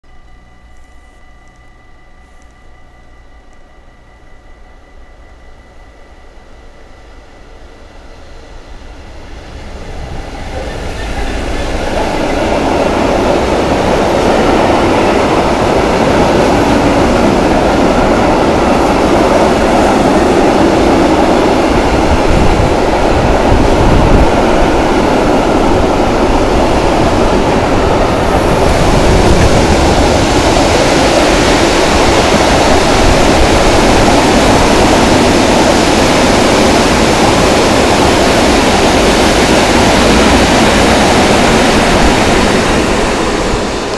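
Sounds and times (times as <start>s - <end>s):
level-crossing bell ringing: 0.0s - 9.2s
diesel locomotive approaching: 0.0s - 43.9s.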